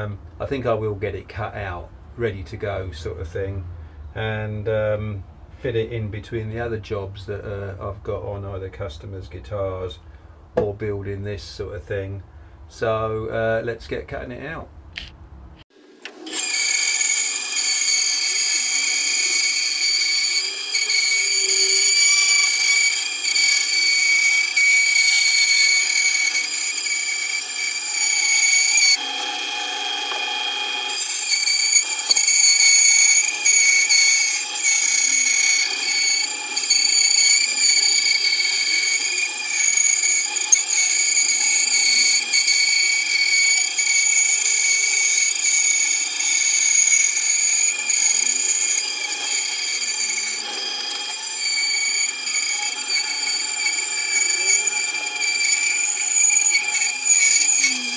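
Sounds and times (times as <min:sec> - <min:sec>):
bandsaw cutting wood: 0:16.0 - 0:57.9.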